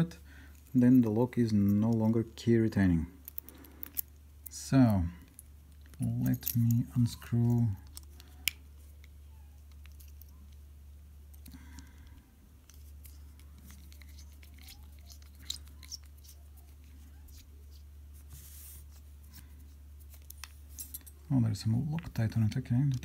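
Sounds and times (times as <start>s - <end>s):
screwdriver clicking and scraping: 12.6s - 16.4s.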